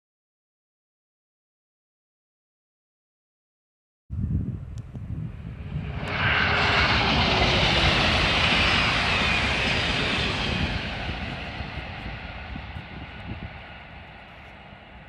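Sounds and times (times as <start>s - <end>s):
wind buffeting microphone: 4.1s - 15.0s
high-speed train passing: 5.1s - 15.0s.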